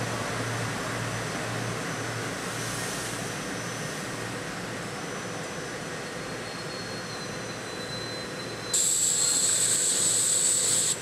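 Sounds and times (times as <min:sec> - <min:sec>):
faint high whine: 0:04.8 - 0:11.0
electric train equipment hum: 0:08.8 - 0:11.0
loud high hiss: 0:08.8 - 0:11.0.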